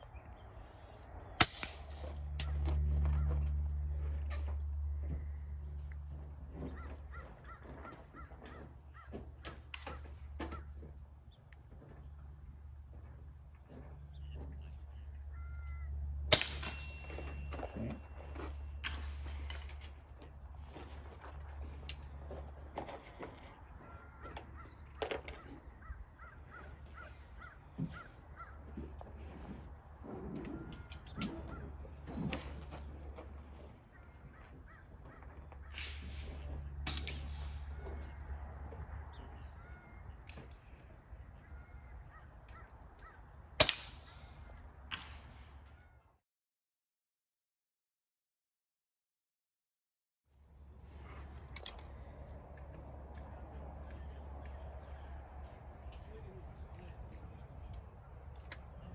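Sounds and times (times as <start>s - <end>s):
crows cawing: 6.6s - 10.8s, 15.3s - 16.0s, 23.7s - 29.0s, 30.6s - 31.8s, 33.8s - 36.0s, 37.7s - 40.2s, 41.4s - 43.4s
fainter crack: 35.6s - 38.0s.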